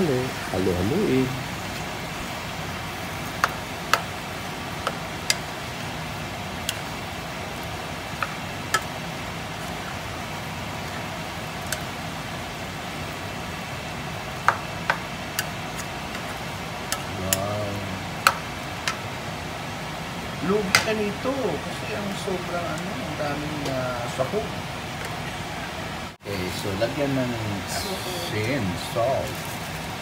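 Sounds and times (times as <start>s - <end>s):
chicken sizzling in a pan: 1.7s - 19.2s.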